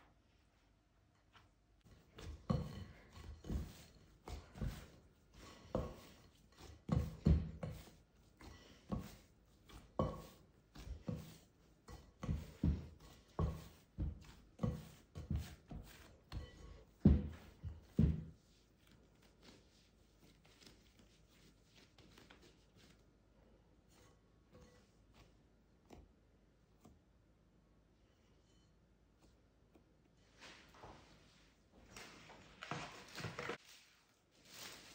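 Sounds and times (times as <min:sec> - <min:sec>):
dough kneaded by hand: 0:00.0 - 0:34.9.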